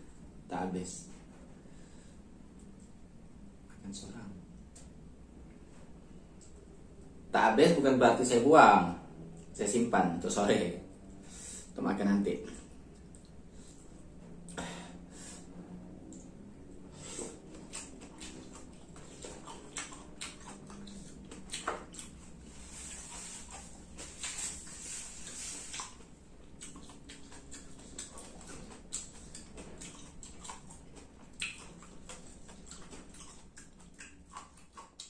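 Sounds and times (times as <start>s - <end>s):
chewing and mouth smacks: 12.5s - 14.6s, 15.9s - 35.0s.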